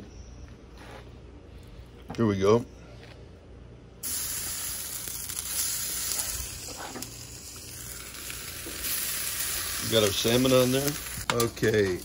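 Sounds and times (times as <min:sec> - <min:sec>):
fish sizzling on grill: 0:04.0 - 0:12.0.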